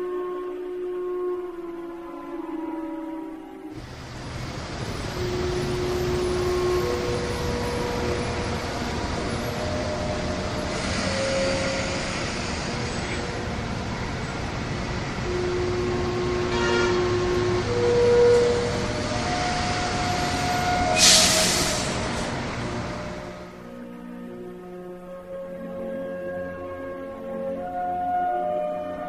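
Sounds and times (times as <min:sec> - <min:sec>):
slow melody of held notes: 0:00.0 - 0:03.8, 0:04.9 - 0:12.0, 0:15.1 - 0:20.9, 0:22.9 - 0:29.0
loud rushing rumble: 0:03.8 - 0:17.8, 0:18.4 - 0:23.6.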